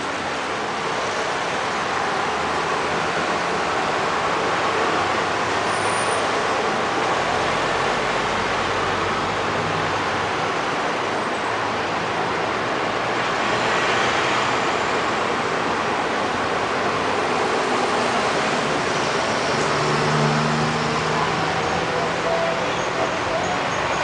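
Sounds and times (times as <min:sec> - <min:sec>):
city traffic noise: 0:00.0 - 0:24.0
passing vehicle engine hum: 0:17.4 - 0:23.7.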